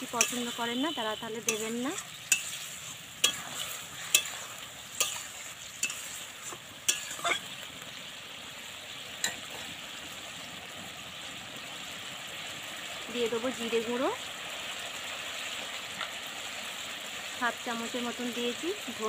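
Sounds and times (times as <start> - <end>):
metal spatula scraping a pan: 0.0 - 7.6
food sizzling in oil: 0.0 - 19.0.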